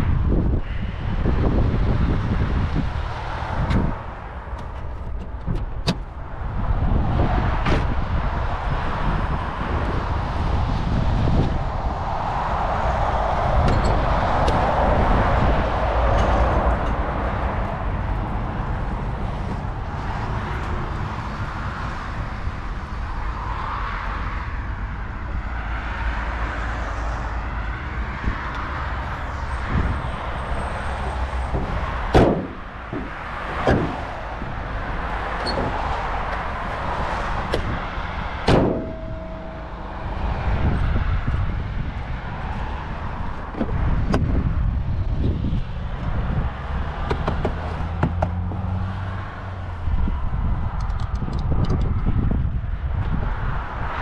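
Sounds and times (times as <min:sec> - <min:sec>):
steady low rumble: 0:00.0 - 0:21.4, 0:27.2 - 0:46.8
car bonnet slamming: 0:31.5 - 0:34.2, 0:38.4 - 0:40.4
knocks on car bodywork: 0:31.6 - 0:34.0, 0:38.4 - 0:39.1.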